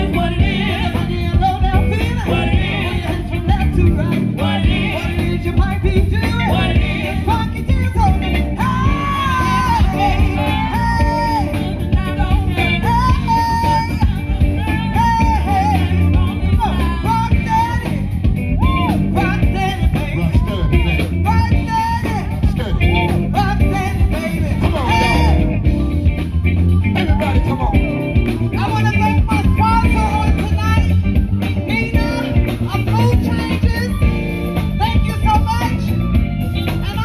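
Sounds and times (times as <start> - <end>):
woman singing: 0.0 - 18.1
drum kit: 0.0 - 37.0
guitar: 0.0 - 37.0.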